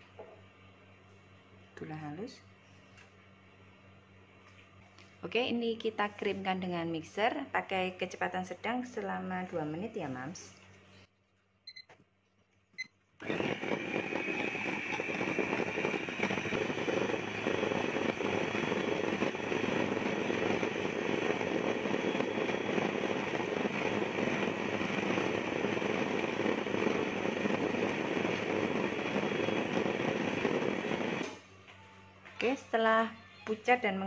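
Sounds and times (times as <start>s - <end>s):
electric hand mixer whine: 13.2s - 31.4s.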